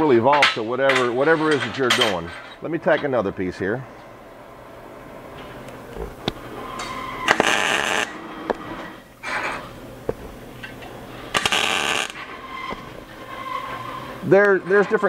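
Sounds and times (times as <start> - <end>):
welding arc crackling: 5.6 - 9.2, 10.0 - 13.8.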